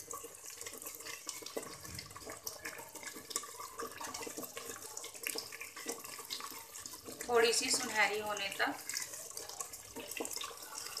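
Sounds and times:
onion paste sizzling in oil: 0.0 - 11.0
wooden spoon stirring: 0.0 - 11.0.

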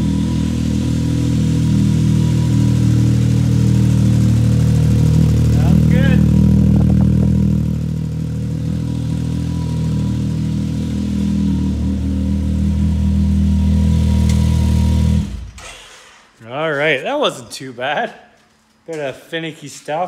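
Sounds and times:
off-road vehicle engine running: 0.0 - 15.6.

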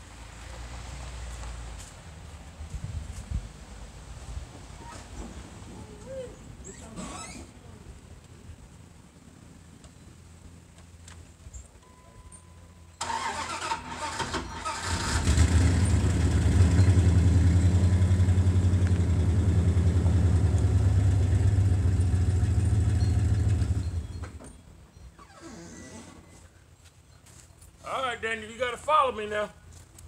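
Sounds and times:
truck engine running: 13.0 - 24.2
truck engine cranking: 13.0 - 24.6.

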